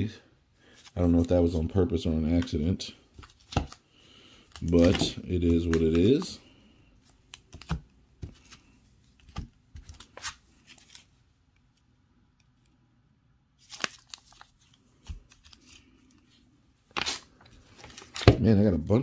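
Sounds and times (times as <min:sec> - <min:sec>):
plastic rustling: 0:04.4 - 0:06.4.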